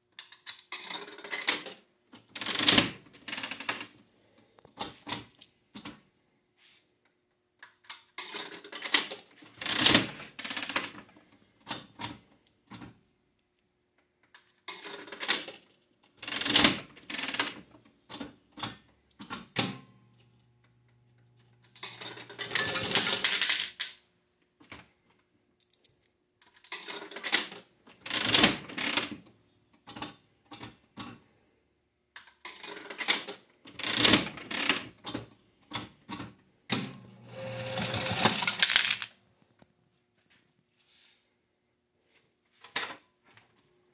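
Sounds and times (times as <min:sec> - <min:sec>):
slot machine reels clicking: 0:21.8 - 0:23.4, 0:37.3 - 0:39.0
coins clattering into tray: 0:21.8 - 0:24.0, 0:37.5 - 0:39.1.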